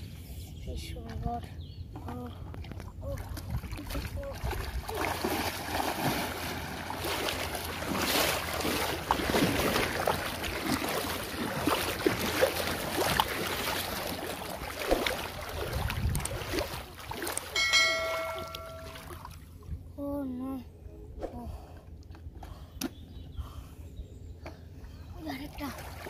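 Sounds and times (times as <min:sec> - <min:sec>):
water splashing from wading: 0:02.5 - 0:19.6, 0:25.5 - 0:26.0
short ringing chime: 0:17.6 - 0:19.2.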